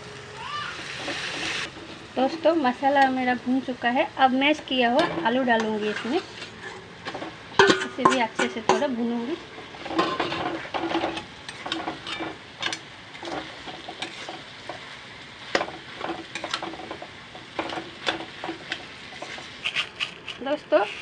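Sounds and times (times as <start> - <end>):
frying sizzle: 0.0 - 21.0
metal spatula scraping pan: 4.9 - 14.8, 15.5 - 21.0.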